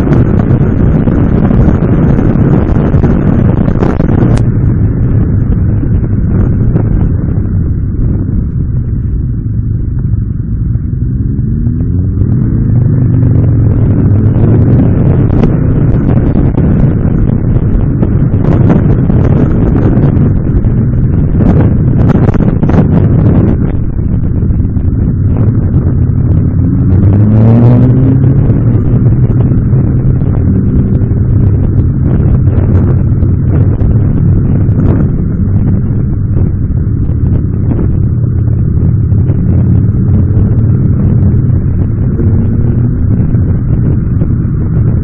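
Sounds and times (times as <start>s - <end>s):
motorcycle engine: 0.0s - 45.0s
wind rumble on microphone: 0.0s - 45.0s.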